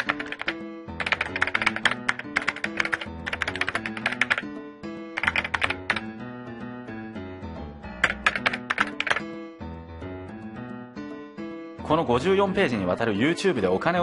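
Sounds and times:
computer keyboard typing clicks: 0.0 - 4.4, 5.2 - 6.0, 8.0 - 9.2
light background music: 0.0 - 14.0.

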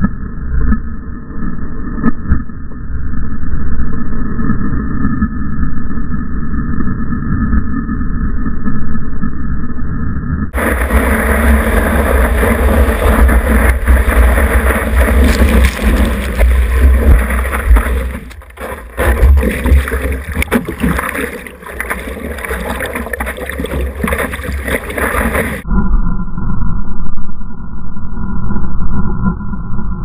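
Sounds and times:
water rushing and splashing: 10.6 - 25.6
wind buffeting microphone: 10.6 - 25.6.

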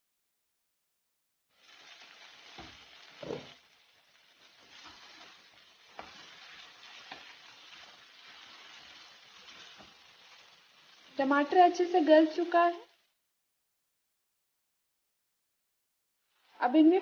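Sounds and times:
curry sizzling in a pan: 1.5 - 13.2, 16.2 - 17.0.

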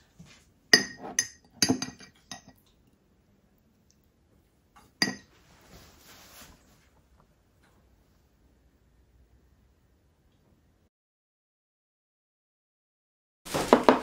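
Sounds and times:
spoon clinking against glass jar: 0.8 - 2.6, 5.0 - 5.3.

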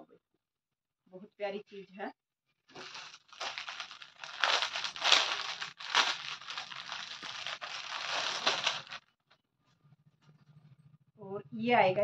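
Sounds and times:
plastic packet crinkling: 2.8 - 9.0.

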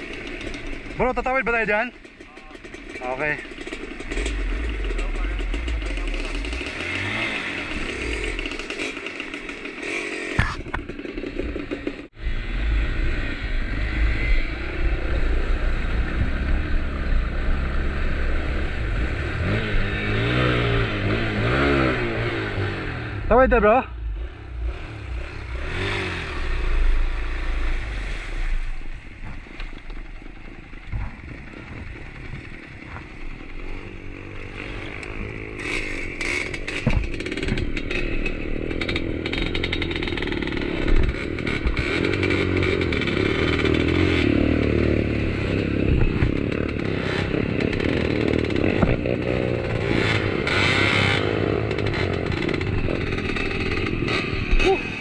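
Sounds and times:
motorcycle engine revving: 0.0 - 55.0
knocks: 36.8 - 37.7.

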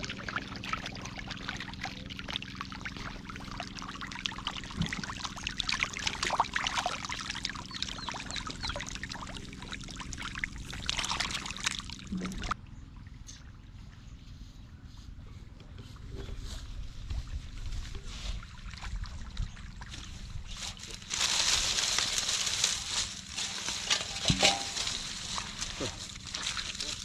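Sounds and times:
fish splashing in water: 0.0 - 12.6, 18.4 - 27.0
low steady hum: 0.0 - 27.0.

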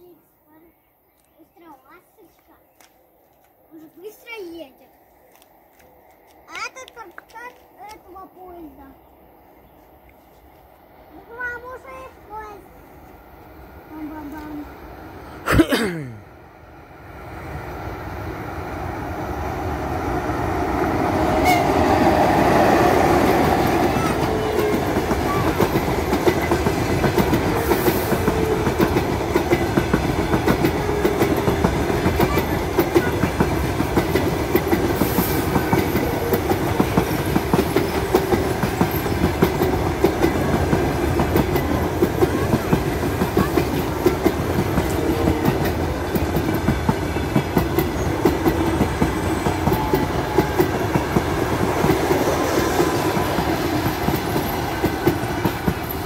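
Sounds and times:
electric locomotive passing: 3.6 - 15.5, 16.2 - 56.0
train wheels clicking over rail joints: 22.3 - 56.0.

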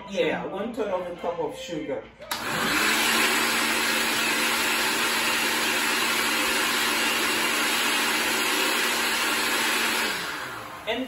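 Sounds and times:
blender whirring: 2.3 - 11.0.

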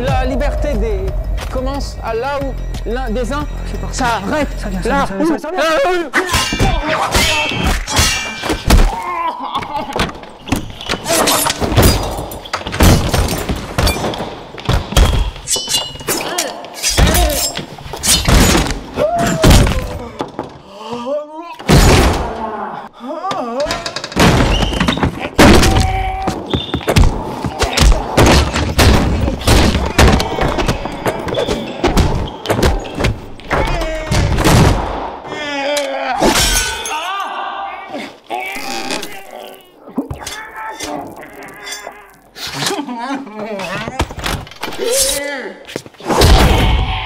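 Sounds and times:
fight hits and thuds: 24.2 - 35.2.

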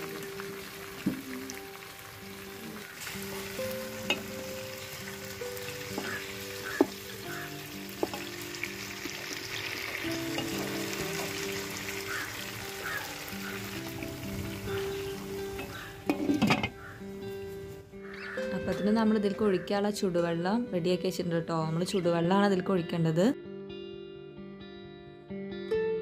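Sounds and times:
chicken sizzling in a pot: 0.0 - 17.7
background music: 0.0 - 26.0.

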